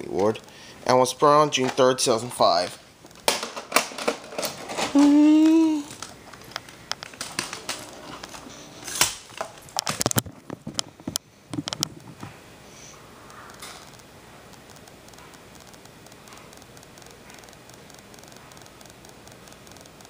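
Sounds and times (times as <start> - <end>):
person humming: 4.9 - 6.0.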